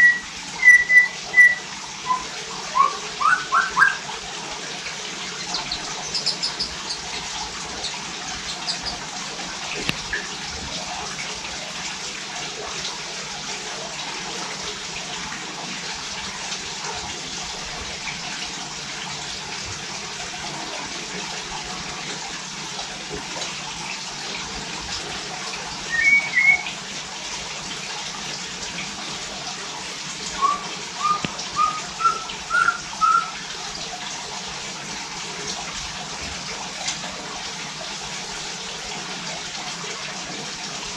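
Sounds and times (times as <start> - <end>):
bird calling: 0.0 - 4.1, 25.9 - 26.7, 30.4 - 33.4.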